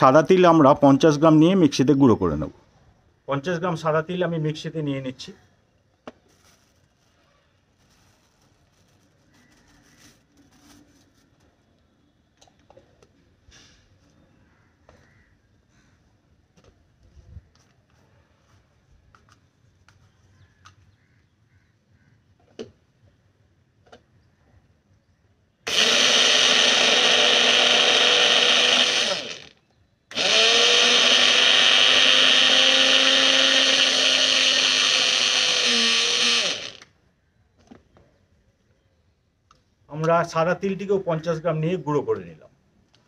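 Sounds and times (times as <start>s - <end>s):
electric mixer grinder grinding seeds: 25.7s - 36.9s.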